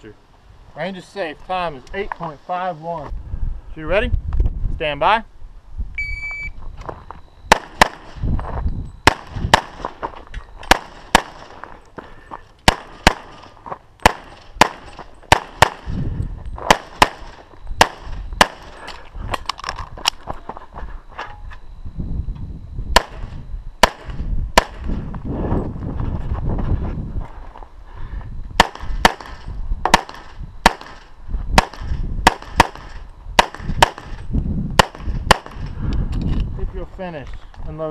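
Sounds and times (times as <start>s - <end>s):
shot timer beep: 6.0s - 6.6s
pistol shots: 7.5s - 8.1s, 9.1s - 10.0s, 10.6s - 11.6s, 12.6s - 15.9s, 16.7s - 18.8s, 23.0s - 24.9s, 28.6s - 34.2s, 34.8s - 35.7s.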